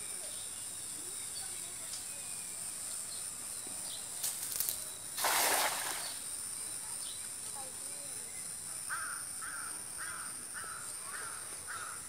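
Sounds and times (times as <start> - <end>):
insects droning: 0.0 - 12.0
cast net rustling: 4.2 - 6.2
net splashing into pond: 4.3 - 6.3.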